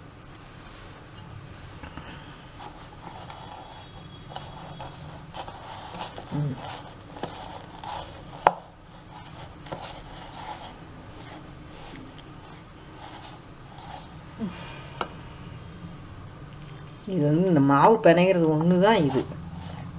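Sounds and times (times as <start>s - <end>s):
spoon stirring dough in plastic bowl: 2.5s - 14.3s, 17.9s - 19.9s.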